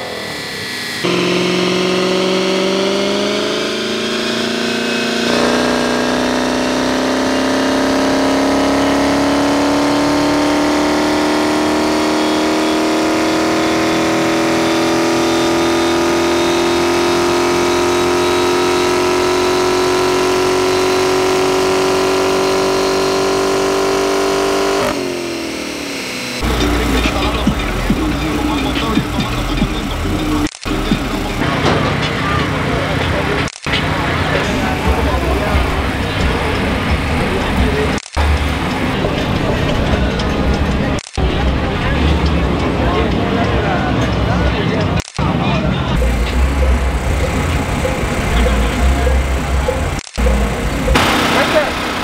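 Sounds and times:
car engine revving on dyno: 0.0 - 52.0.

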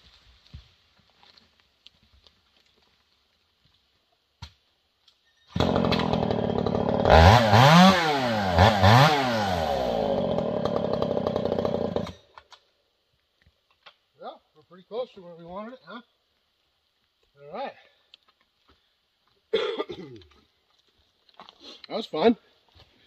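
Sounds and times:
chainsaw revving: 5.6 - 12.2.

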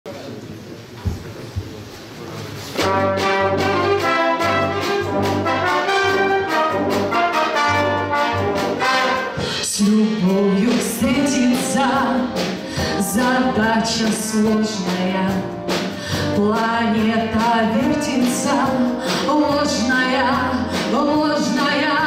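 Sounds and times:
brass band playing: 2.8 - 22.0
woman singing: 9.4 - 22.0.

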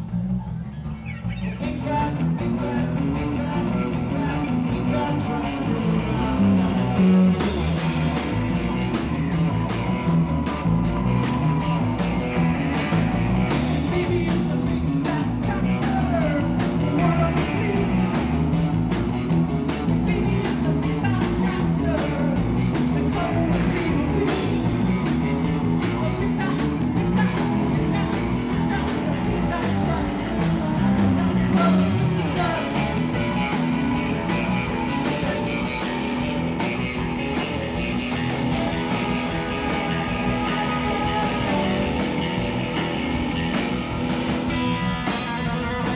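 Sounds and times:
bass guitar: 0.0 - 45.9
drum kit: 0.0 - 45.9
electric guitar: 0.0 - 45.9
woman singing: 25.9 - 33.2.

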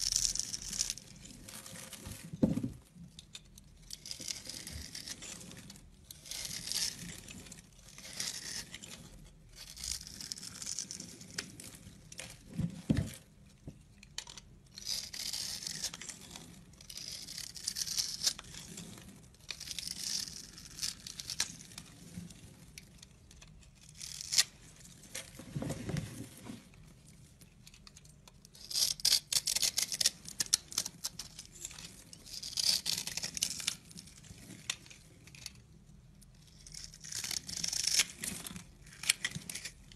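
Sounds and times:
knife scraping through soap: 3.3 - 11.3, 30.8 - 34.2.

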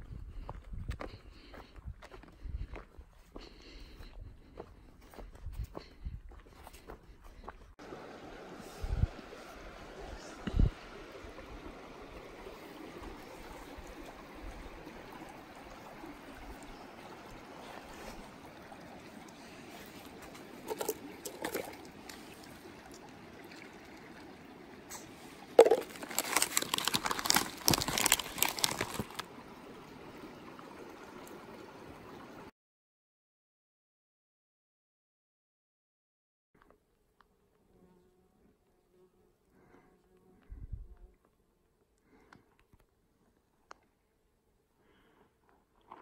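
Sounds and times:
trickle of running water: 7.8 - 32.5
crackling and clattering: 25.6 - 29.2.

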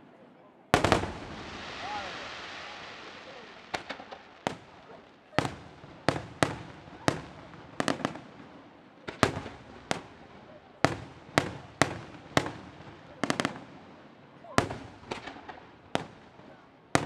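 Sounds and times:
firework shells bursting: 0.8 - 8.3.

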